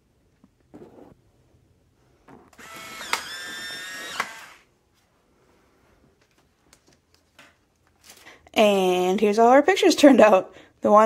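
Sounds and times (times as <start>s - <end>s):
camera motor whirring: 2.5s - 4.7s.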